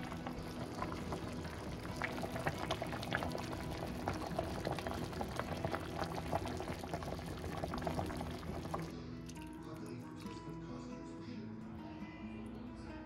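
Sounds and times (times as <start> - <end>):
soup boiling with bubbles popping: 0.0 - 9.5.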